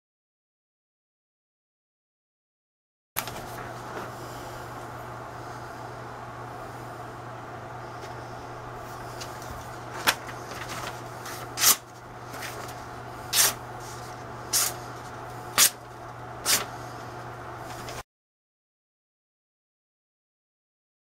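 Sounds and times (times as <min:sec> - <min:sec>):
steady low hum: 0:03.2 - 0:18.0
knife slicing paper: 0:10.0 - 0:16.7.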